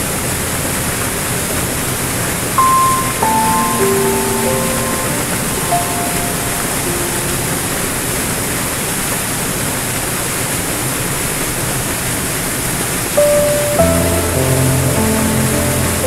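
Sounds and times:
piano note: 2.6 - 8.6, 13.2 - 16.0
waterfall rushing over rocks: 2.6 - 16.0.

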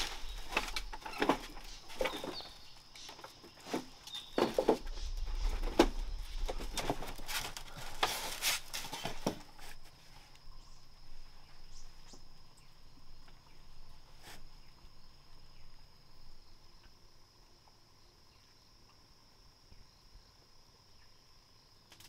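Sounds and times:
handling knocks and rustling: 0.0 - 10.4
insects trilling: 0.0 - 22.0.

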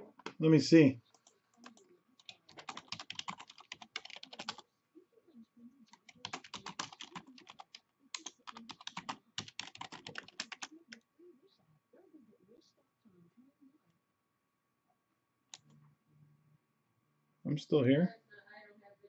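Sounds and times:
typing on computer keyboard: 1.2 - 4.6, 5.9 - 10.8.

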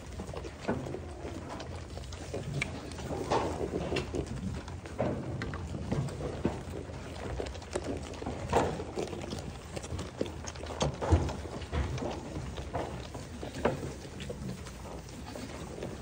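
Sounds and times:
goats crunching feed: 0.0 - 16.0.

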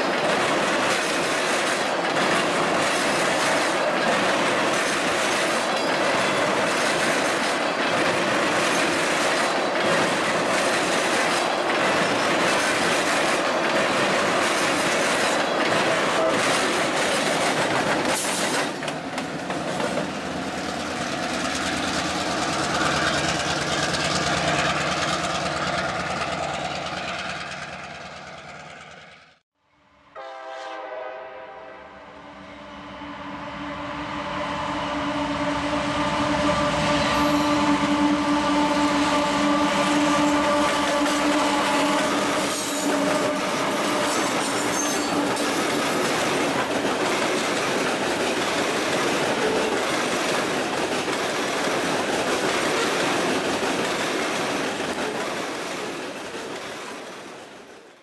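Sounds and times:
train wheels clacking on rails: 0.0 - 29.1, 36.6 - 58.0
diesel locomotive engine: 0.0 - 58.0
locomotive air horn blast: 30.1 - 45.4.

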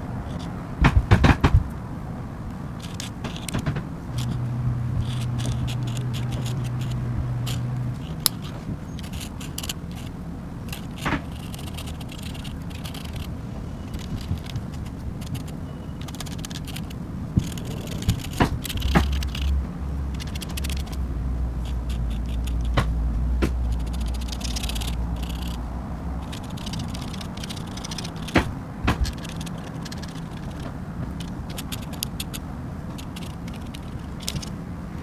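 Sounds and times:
pen scratching on paper: 2.8 - 25.6, 26.2 - 34.5
pen tapping: 13.9 - 21.0.

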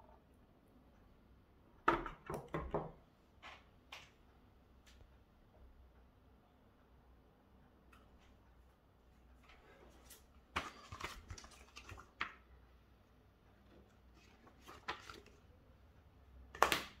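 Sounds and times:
paper rustling: 9.4 - 12.4, 13.9 - 15.5.

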